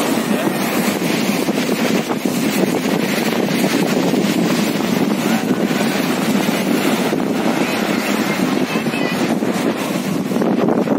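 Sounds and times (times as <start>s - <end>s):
small waves washing onto sand: 0.0s - 10.9s
wind buffeting microphone: 0.0s - 10.9s.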